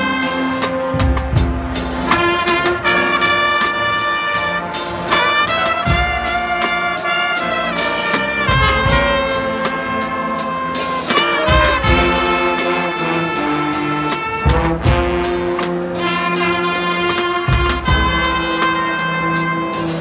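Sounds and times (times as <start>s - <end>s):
brass band playing loudly: 0.0s - 20.0s
drums and cymbals beat: 0.0s - 20.0s.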